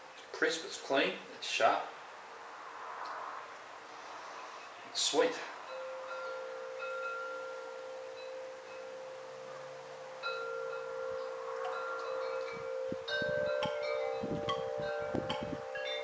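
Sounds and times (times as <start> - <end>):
wind chimes ringing: 5.4 - 16.0
low rumbles: 10.8 - 16.0.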